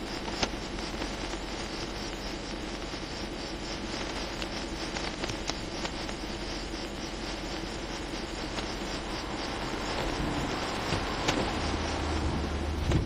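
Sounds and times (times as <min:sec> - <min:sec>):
insect-like chirring: 0:00.0 - 0:13.0
idling cars humming: 0:08.5 - 0:13.0.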